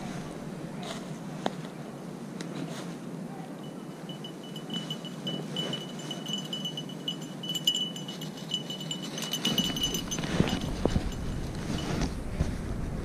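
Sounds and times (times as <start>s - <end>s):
small bell jingling: 3.6s - 12.0s
wind rumbling on microphone: 3.6s - 13.0s.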